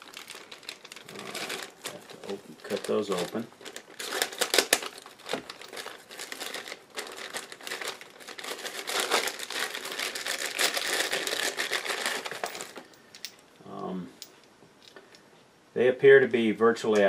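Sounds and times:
plastic bags crinkling: 0.0 - 13.3.

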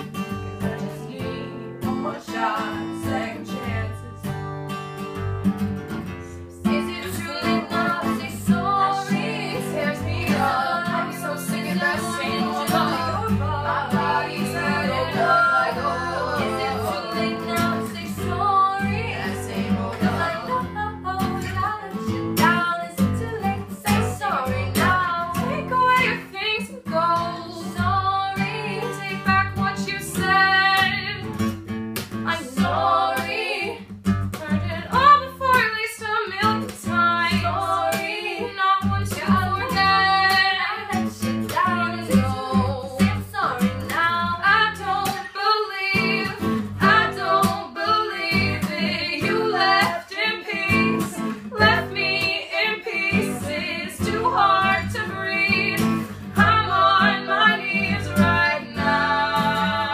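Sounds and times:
acoustic guitar strumming: 0.0 - 59.9
women singing together: 0.6 - 4.1, 6.3 - 31.3, 32.2 - 59.9.

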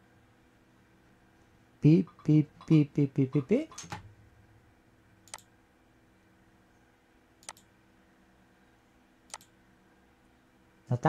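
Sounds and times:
faint steady hum: 0.0 - 11.0
computer mouse clicks: 5.3 - 5.5, 7.4 - 7.7, 9.3 - 9.6.

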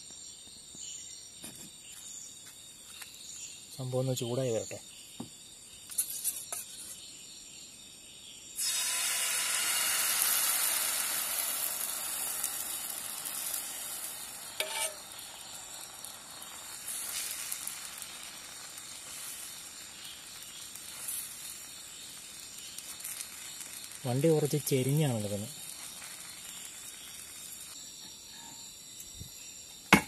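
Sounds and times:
batter sizzling on a pan: 8.5 - 30.0.

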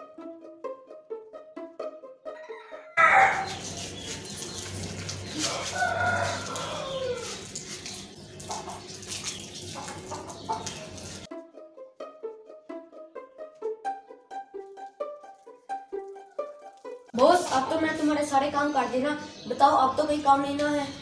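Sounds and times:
rooster crowing: 2.3 - 3.6, 5.4 - 7.4
water splashing on concrete floor: 3.0 - 11.3.

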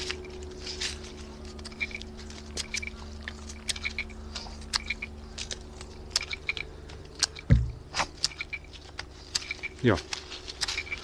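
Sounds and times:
heavy thump: 7.5 - 8.0.

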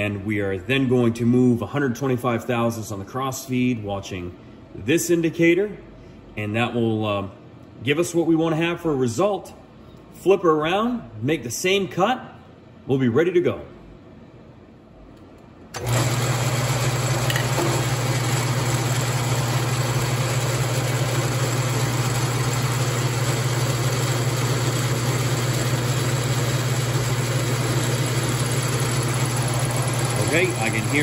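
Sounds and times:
lathe motor humming: 15.8 - 31.0.

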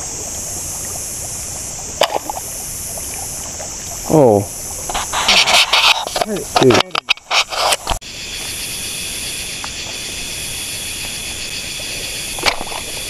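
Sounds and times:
crickets and insects buzzing: 0.0 - 13.0
sharp click: 5.8 - 8.0.

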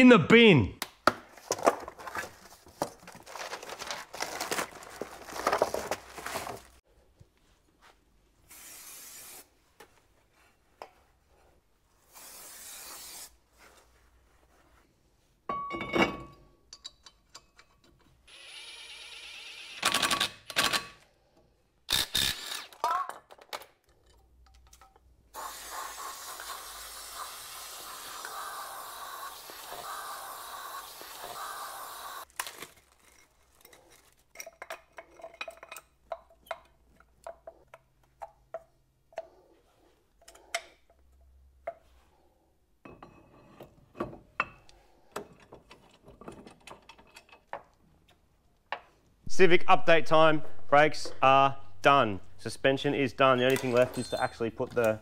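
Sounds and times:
cordless drill running: 18.3 - 19.9, 28.1 - 32.2
steady hiss: 25.4 - 32.2
metallic clinks of tools: 53.5 - 55.0.

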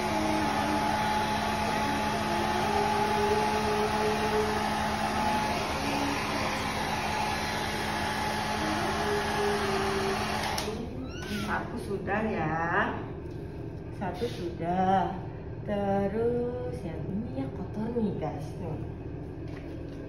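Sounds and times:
hair dryer blowing: 0.0 - 11.6.

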